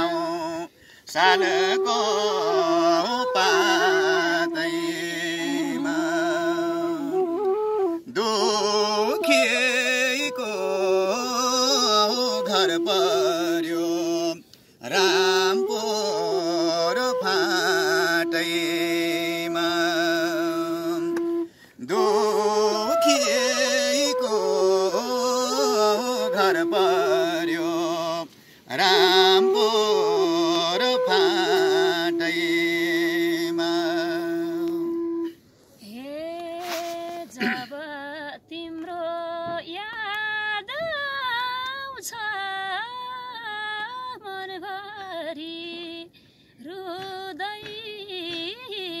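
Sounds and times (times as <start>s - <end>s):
man singing folk melody: 0.0s - 7.1s, 8.1s - 35.1s
bamboo flute: 0.0s - 37.8s.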